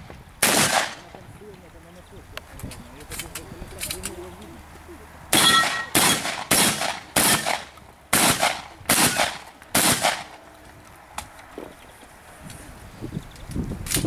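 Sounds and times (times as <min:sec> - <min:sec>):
shotgun shots: 0:00.4 - 0:01.1, 0:05.3 - 0:10.4.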